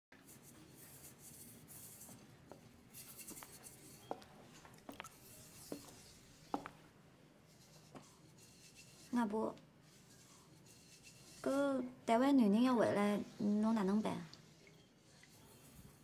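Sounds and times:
scrubbing on crockery: 0:09.9 - 0:11.7.

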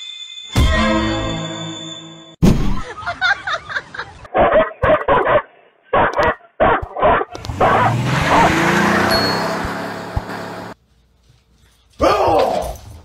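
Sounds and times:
dogs barking: 0:04.3 - 0:08.8
ringing chord: 0:09.1 - 0:10.0.

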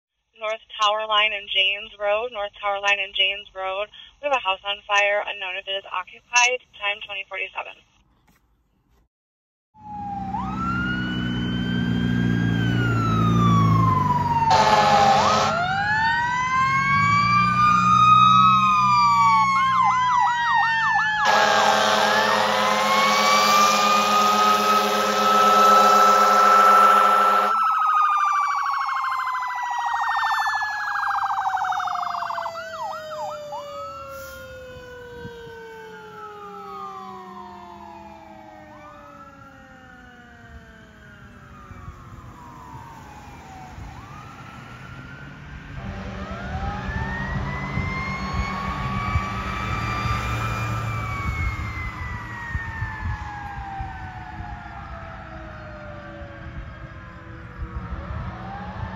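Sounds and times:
truck engine passing: 0:09.8 - 0:28.6, 0:32.5 - 0:53.4
electronic siren wailing: 0:09.8 - 0:58.9
siren winding down: 0:09.8 - 0:58.9
air horn blast: 0:14.5 - 0:15.6, 0:21.2 - 0:27.6, 0:45.8 - 0:46.4.

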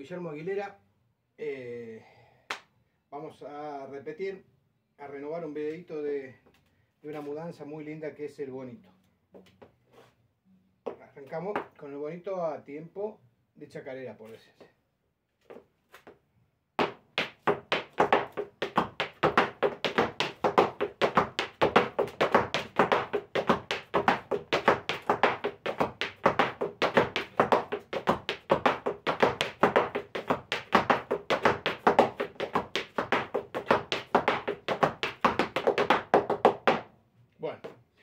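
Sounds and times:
boot sole scrapes: 0:09.9 - 0:10.2
boot heel stamps: 0:16.8 - 0:36.9.

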